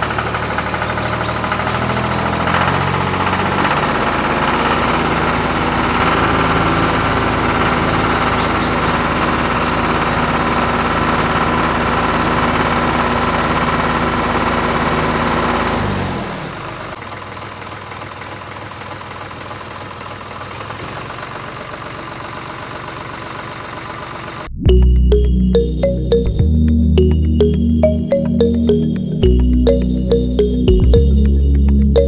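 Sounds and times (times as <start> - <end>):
tractor engine idling: 0.0 - 24.5.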